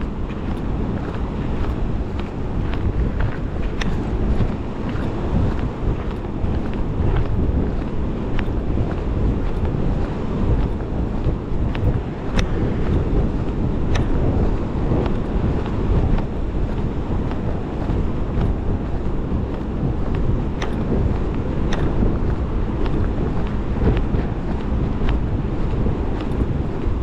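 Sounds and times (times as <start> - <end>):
wind buffeting microphone: 0.0 - 27.0
faint ticks: 0.3 - 18.6, 19.5 - 26.9.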